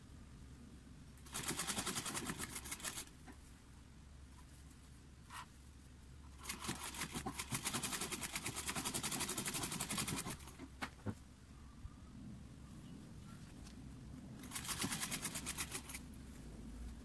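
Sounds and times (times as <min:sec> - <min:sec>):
sewing machine stitching: 0:06.4 - 0:10.5.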